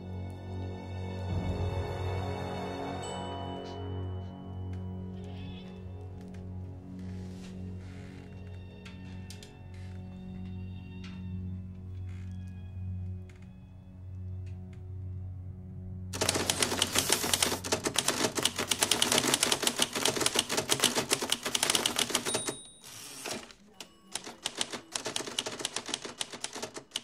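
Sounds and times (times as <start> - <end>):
sustained music: 0.0 - 19.8
typewriter bell ringing: 16.2 - 27.0
typewriter carriage return: 16.2 - 27.0
typewriter key clacks: 16.2 - 27.0.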